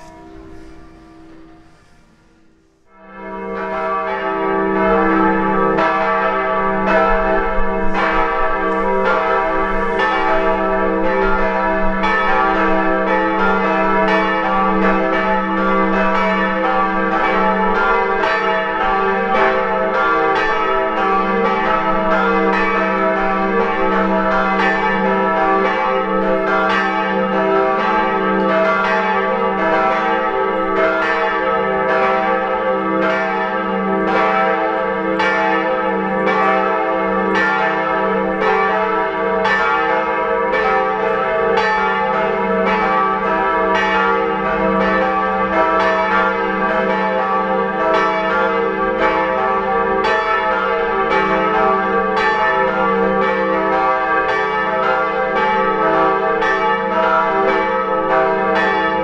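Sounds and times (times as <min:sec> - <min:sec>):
deep bell hum: 0:00.0 - 0:02.8
church bells ringing: 0:00.0 - 0:59.0.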